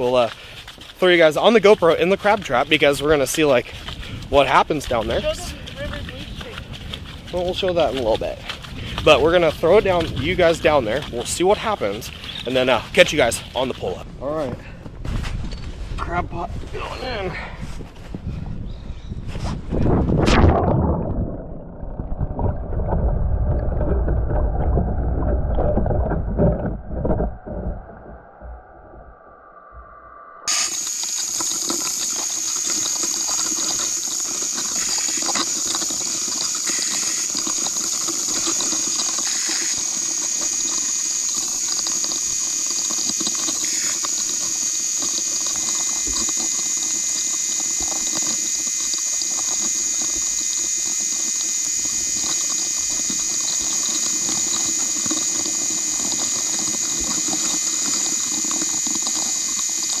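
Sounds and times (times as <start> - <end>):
steady high whine: 26.6 - 60.0.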